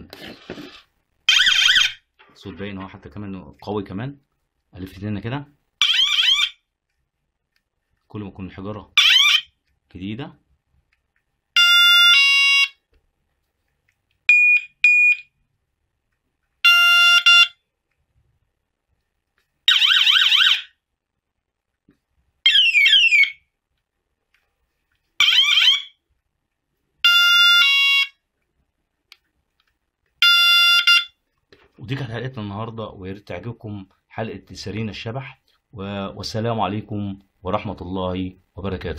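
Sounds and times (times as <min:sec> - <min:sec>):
electronic bicycle siren tones: 0:22.5 - 0:23.5.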